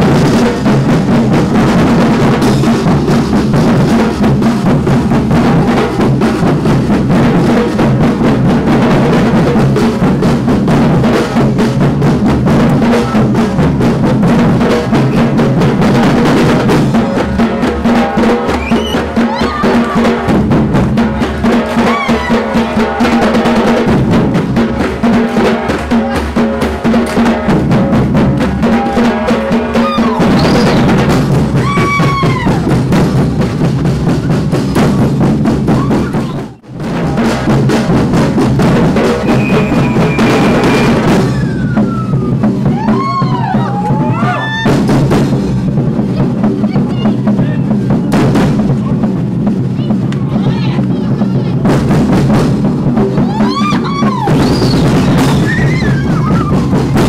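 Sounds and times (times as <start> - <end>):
bass drums struck with mallets: 0.0 - 57.0
samba percussion band: 0.0 - 57.0
people shouting calls: 18.5 - 20.3, 21.7 - 23.4, 28.4 - 30.9, 39.2 - 44.8.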